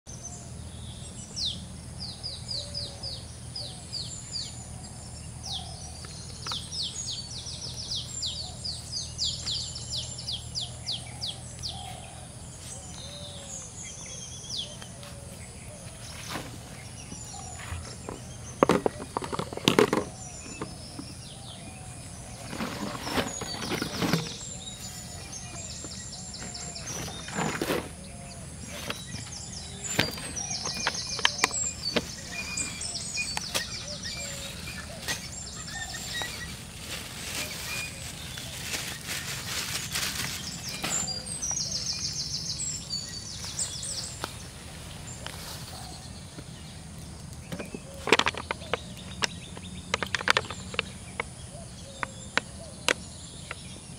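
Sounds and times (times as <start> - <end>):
birds chirping: 0.1 - 53.9
objects clattering and rustling: 15.9 - 41.7, 47.5 - 51.3.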